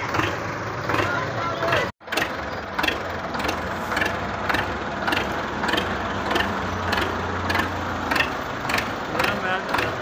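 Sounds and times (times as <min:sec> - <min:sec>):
tractor diesel engine droning: 0:00.0 - 0:10.0
sharp engine knock: 0:02.0 - 0:10.0.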